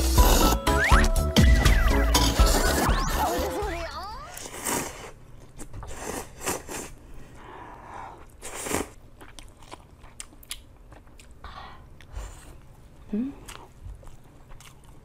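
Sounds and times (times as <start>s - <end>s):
noodle slurping: 2.0s - 3.6s
wet chewing: 8.2s - 15.0s.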